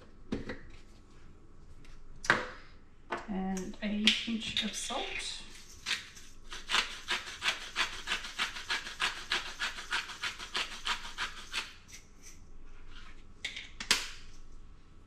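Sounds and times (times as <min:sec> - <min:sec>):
salt grinder grating: 0:05.5 - 0:12.4.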